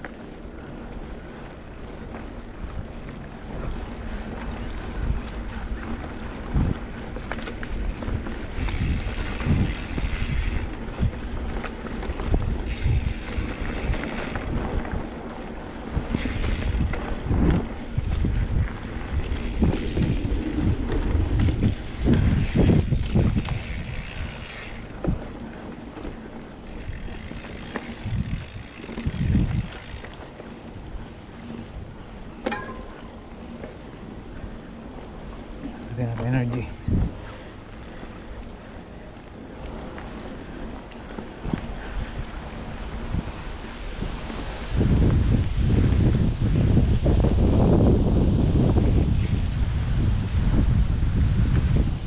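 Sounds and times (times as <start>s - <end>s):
wind buffeting microphone: 0.0s - 52.0s.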